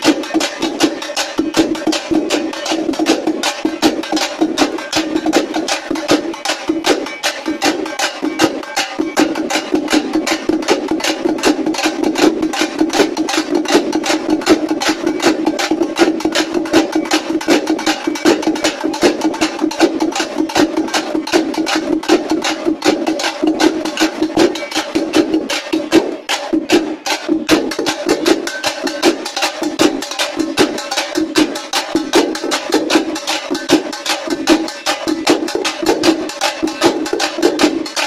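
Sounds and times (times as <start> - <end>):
drum ensemble fast beat: 0.0 - 38.0.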